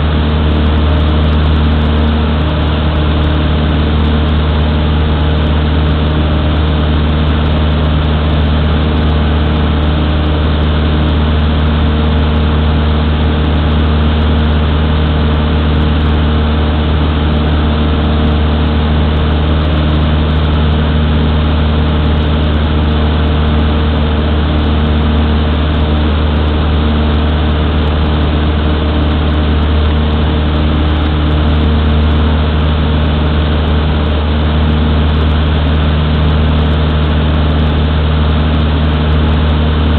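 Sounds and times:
light aircraft engine and propeller: 0.0 - 39.9.

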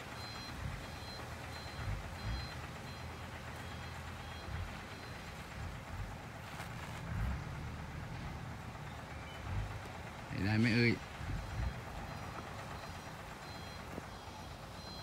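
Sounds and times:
reversing alarm beeps: 0.0 - 5.9, 10.4 - 15.0
diesel engine running: 0.0 - 15.0.

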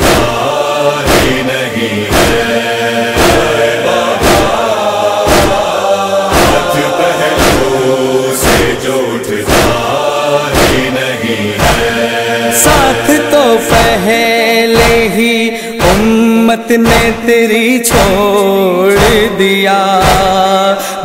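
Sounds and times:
chest-beating slaps: 0.0 - 12.0, 12.6 - 14.0, 14.8 - 15.1, 16.8 - 17.2, 19.0 - 19.3, 20.0 - 20.4
voices chanting lamentation: 0.0 - 21.0.

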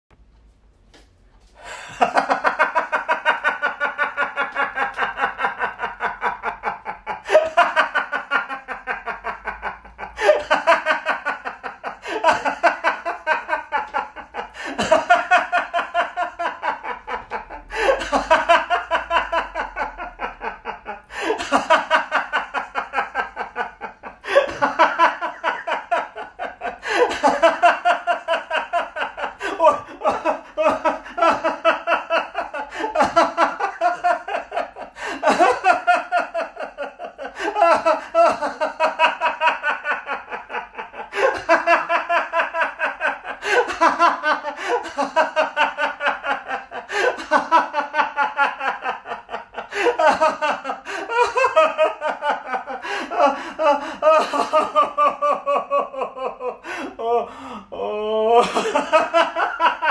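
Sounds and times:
man drawing breath: 1.5 - 2.0
man laughing: 1.6 - 59.9.

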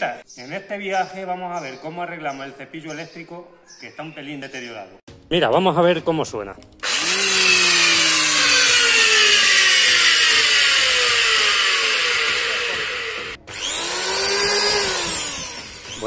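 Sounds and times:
electric hand planer whining: 6.8 - 16.0.

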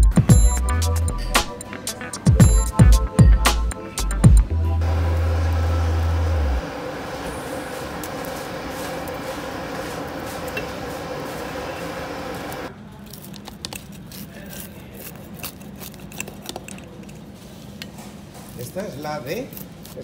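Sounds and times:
pizza oven and fans humming: 4.8 - 20.0.

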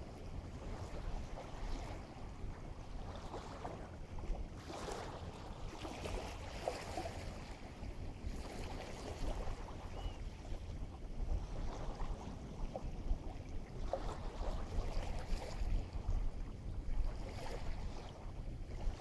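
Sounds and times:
waves washing ashore: 0.0 - 9.9
wind rumbling on microphone: 0.0 - 19.0.

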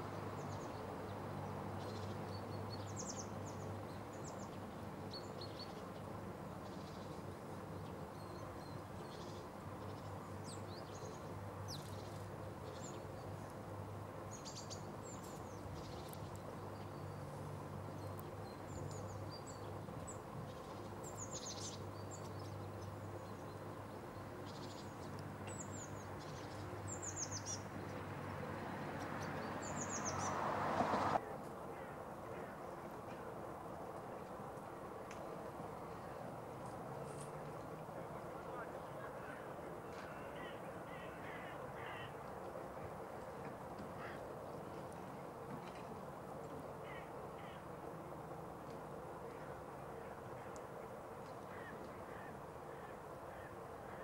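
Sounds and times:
songbirds chirping: 0.0 - 34.5, 35.1 - 47.8
distant city hum: 0.0 - 54.0.

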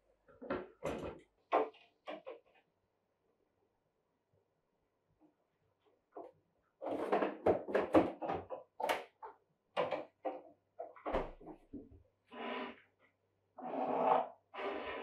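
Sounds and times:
items clattering in refrigerator: 6.8 - 9.2
cabinet opening scrape: 13.6 - 15.0.

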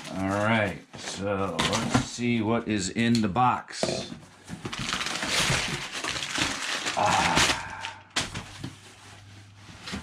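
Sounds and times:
packing paper crinkling: 4.5 - 9.2.

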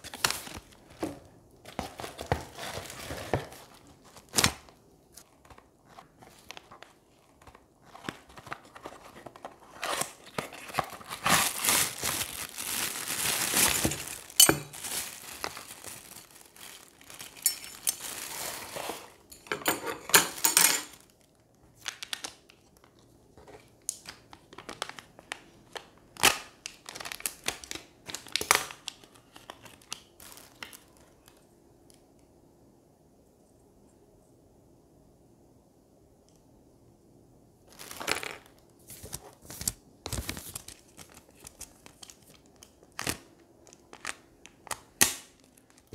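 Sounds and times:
plastic bags crinkling: 0.0 - 19.3, 20.2 - 22.5, 24.5 - 31.4, 37.7 - 44.2.

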